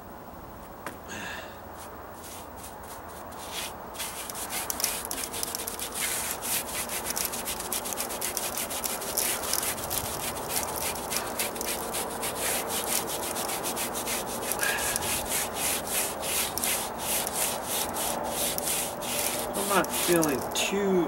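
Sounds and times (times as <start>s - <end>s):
paintbrush scrubbing stucco: 1.7s - 20.8s.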